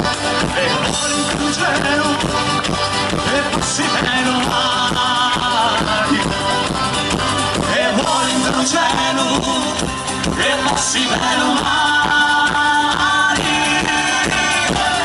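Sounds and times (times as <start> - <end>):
acoustic guitars strumming: 0.0 - 15.0
congas: 0.0 - 15.0
drum kit: 0.0 - 15.0
person singing: 3.2 - 6.5, 7.6 - 15.0.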